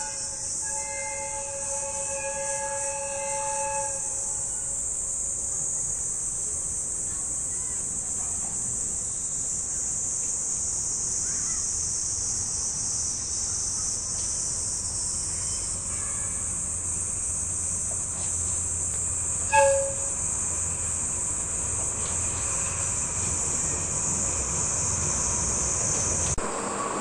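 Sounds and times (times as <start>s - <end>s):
short locomotive horn toot: 0.0s - 4.8s, 19.5s - 20.3s
insects buzzing: 0.0s - 26.4s
diesel locomotive engine rumble: 0.0s - 27.0s.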